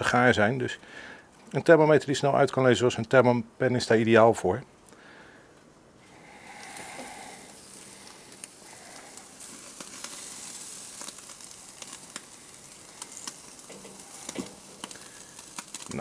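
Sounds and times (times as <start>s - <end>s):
steaks sizzling on barbecue: 6.1s - 16.0s.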